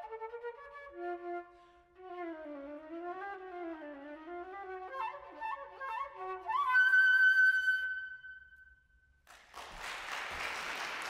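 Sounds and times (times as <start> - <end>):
flute playing: 0.0 - 9.0
audience applause: 9.3 - 11.0.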